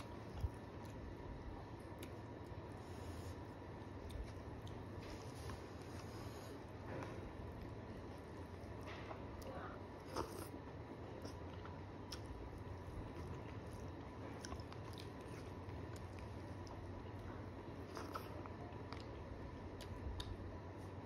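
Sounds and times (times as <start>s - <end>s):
person chewing: 0.0s - 20.9s
steady low hum: 0.0s - 21.0s.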